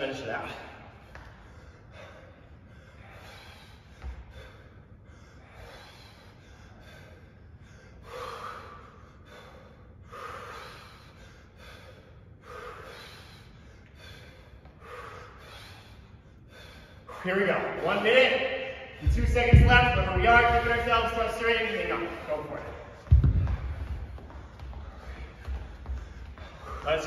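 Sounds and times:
men breathing hard: 0:00.4 - 0:27.0.

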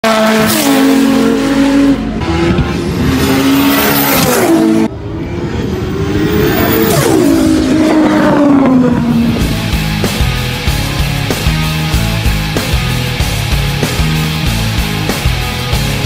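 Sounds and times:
cars passing at high revs: 0:00.0 - 0:10.1.

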